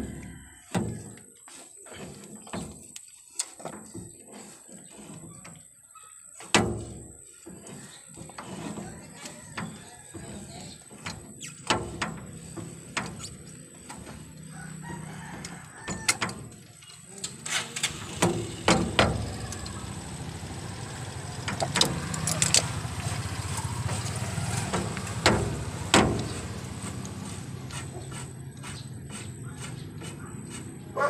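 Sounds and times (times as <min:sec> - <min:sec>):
rooster crowing: 0:00.0 - 0:01.2, 0:14.4 - 0:16.4
pliers clicking and scraping metal: 0:21.6 - 0:22.7.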